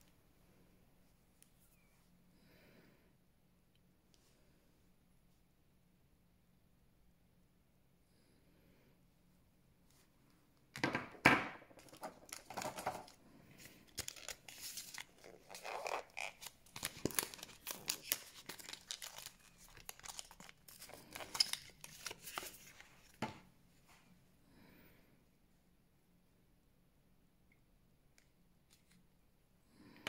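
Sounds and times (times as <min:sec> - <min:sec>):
packaging crinkling and tearing: 0:11.8 - 0:23.0.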